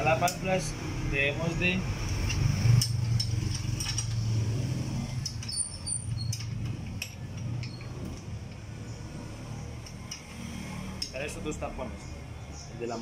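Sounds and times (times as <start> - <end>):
metallic clicks and clinks: 2.0 - 9.0, 9.7 - 12.1.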